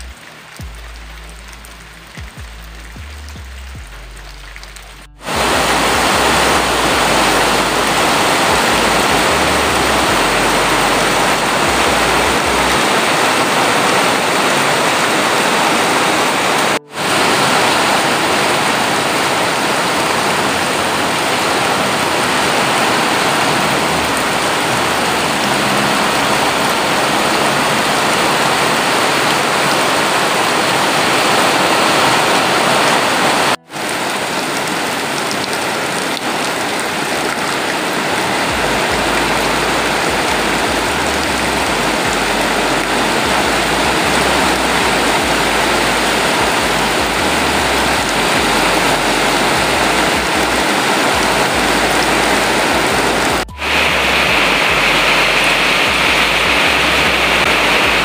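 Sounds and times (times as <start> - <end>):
heavy rain pouring: 0.0 - 58.0.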